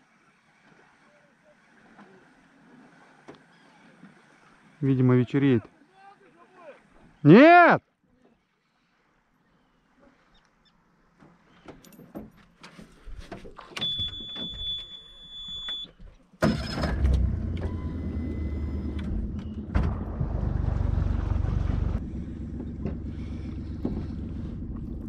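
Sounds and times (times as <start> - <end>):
high beep: 13.8 - 15.9
boat motor running: 16.4 - 25.0.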